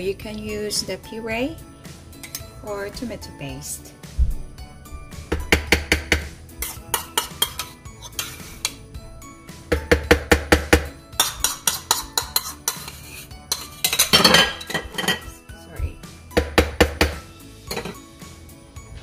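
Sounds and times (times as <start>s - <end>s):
soft background music: 0.0s - 19.0s
spoon scraping plastic bowl: 6.6s - 8.8s, 11.2s - 15.3s.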